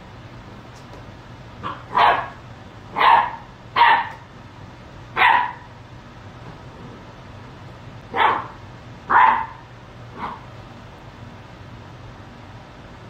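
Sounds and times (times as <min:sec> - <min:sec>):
puppy barking: 0:01.6 - 0:04.3, 0:05.2 - 0:05.7, 0:08.1 - 0:10.5.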